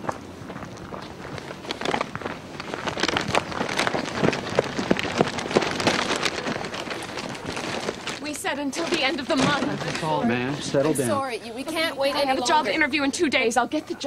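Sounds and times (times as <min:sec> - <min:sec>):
crunching of gravel: 0:00.0 - 0:10.6.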